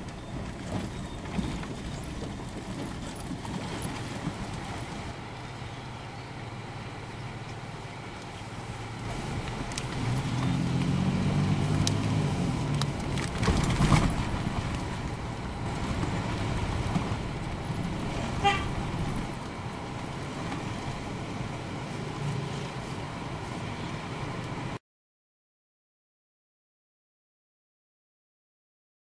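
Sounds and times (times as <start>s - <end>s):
car engine and road noise: 0.0s - 24.8s
short car horn toot: 18.4s - 18.8s.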